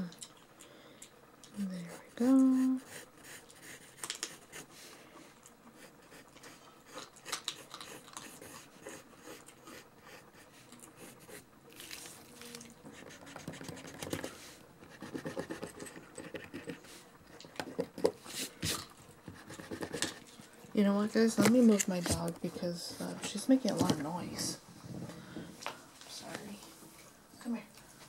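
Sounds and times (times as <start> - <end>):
pencil scratching on paper: 1.8 - 4.7, 5.8 - 11.4, 12.9 - 16.9, 19.3 - 20.2
dog crunching food: 7.0 - 8.4.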